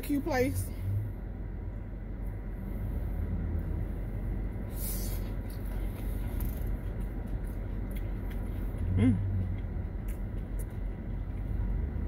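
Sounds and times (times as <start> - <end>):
short hissing rustle: 4.7 - 5.3.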